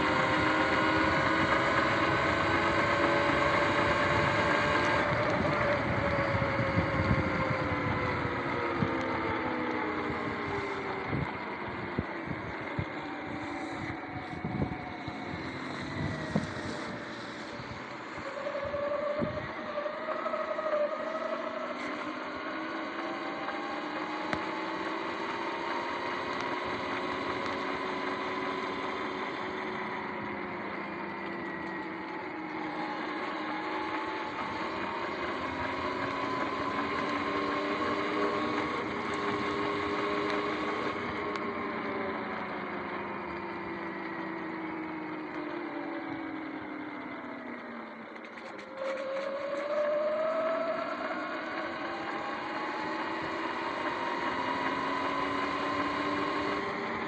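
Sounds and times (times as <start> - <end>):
wind noise: 0.0 - 19.7
electric motor whining: 0.0 - 57.0.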